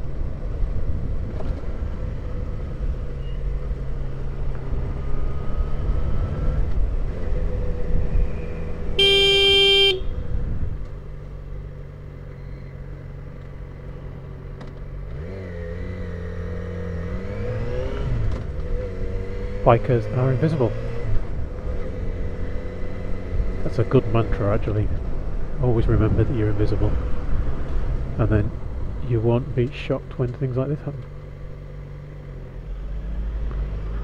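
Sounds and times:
wind rumble on microphone: 0:00.0 - 0:02.9, 0:10.0 - 0:11.0, 0:24.9 - 0:29.1
vehicle horn: 0:09.0 - 0:10.2.

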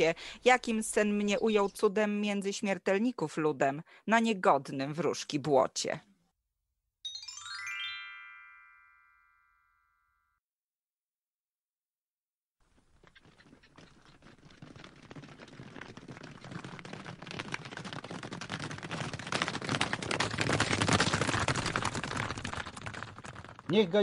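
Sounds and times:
pack of hounds approaching: 0:12.7 - 0:24.0.

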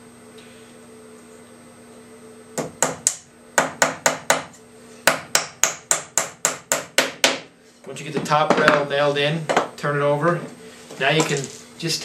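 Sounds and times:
hammer tapping nails: 0:05.1 - 0:07.4.

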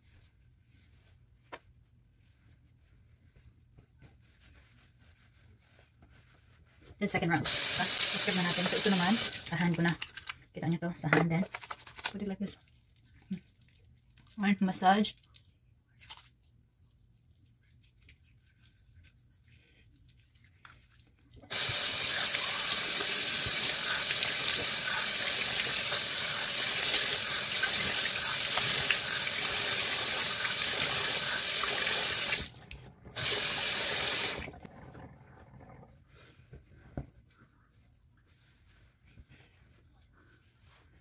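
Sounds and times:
tap water running into basin: 0:07.4 - 0:09.7, 0:21.5 - 0:34.8.

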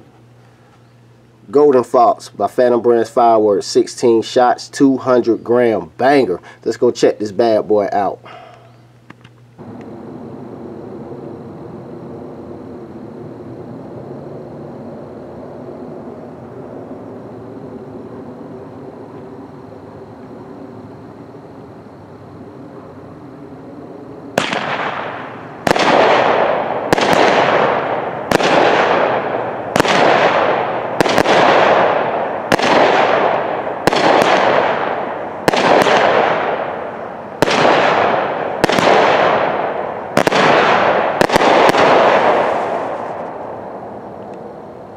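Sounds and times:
crackling hiss: 0:00.0 - 0:44.9
firework cake sharp reports: 0:40.2 - 0:43.2.

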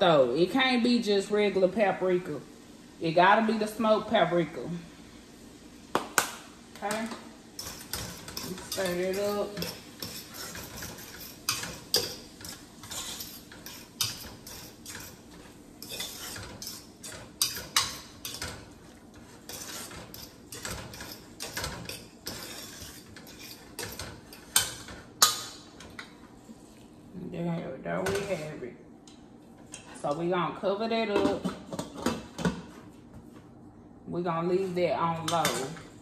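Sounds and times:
spoon scraping and clinking in a pot: 0:07.6 - 0:26.1.

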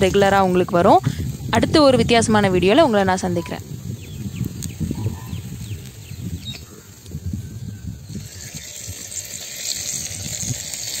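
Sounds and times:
bird chirps: 0:03.3 - 0:08.8.

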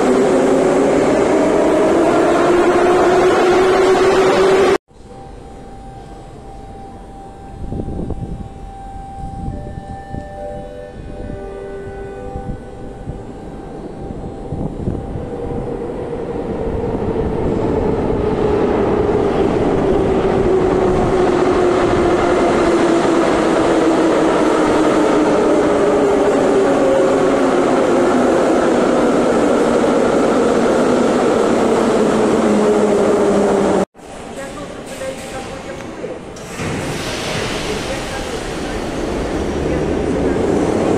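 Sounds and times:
train rumble: 0:10.2 - 0:40.9.

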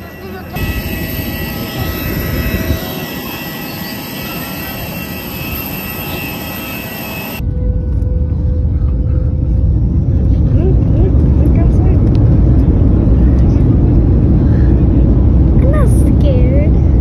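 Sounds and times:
airliner cabin rumble: 0:00.0 - 0:17.0
jet engines whining: 0:00.0 - 0:17.0.

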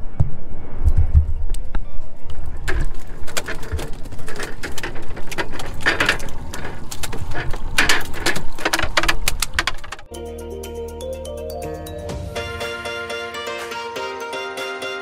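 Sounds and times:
fish flopping on boat deck: 0:02.5 - 0:10.1.

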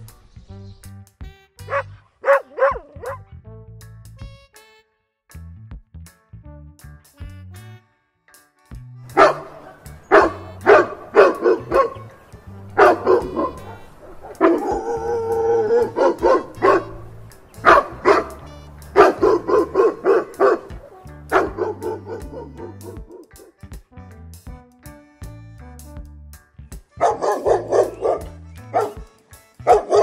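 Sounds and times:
quiet background music: 0:00.0 - 0:03.5, 0:08.0 - 0:26.1, 0:26.8 - 0:30.0
dog barking: 0:01.7 - 0:03.2, 0:09.1 - 0:12.2, 0:12.8 - 0:23.5, 0:27.0 - 0:29.0, 0:29.7 - 0:30.0
dog howling with wavering pitch: 0:13.0 - 0:16.9.

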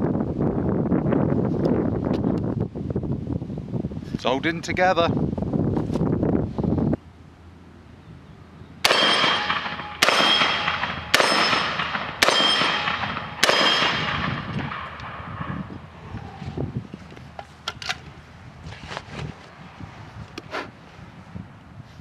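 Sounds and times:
shotgun shots echoing: 0:08.8 - 0:15.6.

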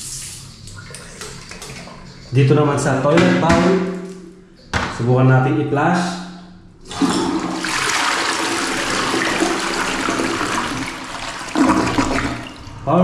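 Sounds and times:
toilet flushing: 0:00.0 - 0:03.1, 0:06.8 - 0:13.0.

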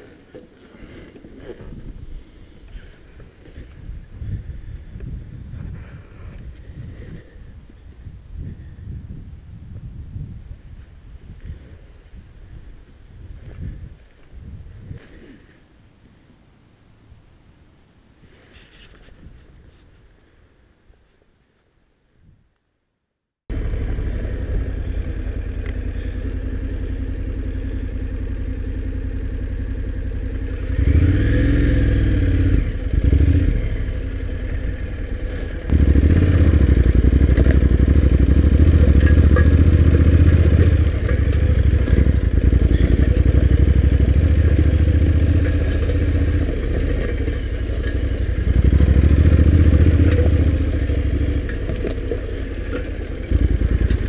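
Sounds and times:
motorcycle engine off-road: 0:00.0 - 0:17.3, 0:23.5 - 0:54.0.

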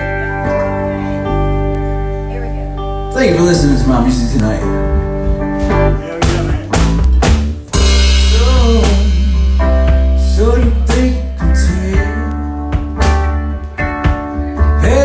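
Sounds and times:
electric guitar: 0:00.0 - 0:15.0
man singing: 0:03.2 - 0:04.8, 0:05.8 - 0:07.0, 0:07.8 - 0:13.0, 0:14.2 - 0:15.0.

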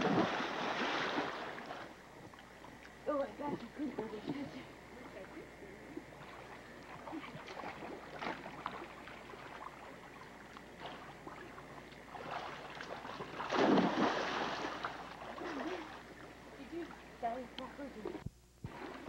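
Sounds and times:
splash into pool: 0:00.0 - 0:01.8, 0:12.1 - 0:16.0
churning water: 0:00.0 - 0:19.0.

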